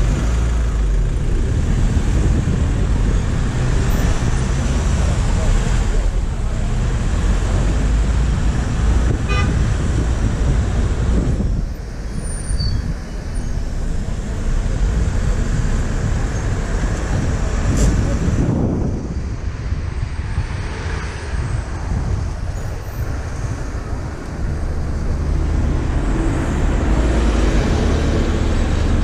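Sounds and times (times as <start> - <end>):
car engine and road rumble: 0.0 - 29.0
car horn toot: 9.3 - 9.6.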